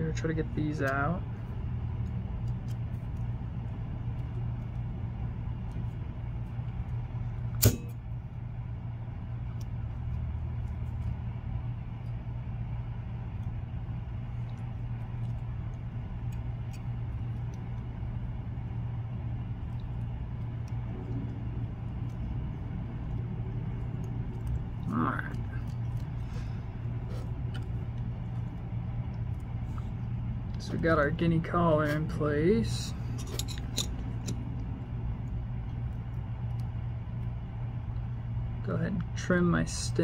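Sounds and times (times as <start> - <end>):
low background hum: 0.0 - 40.0
sharp click: 7.6 - 8.0.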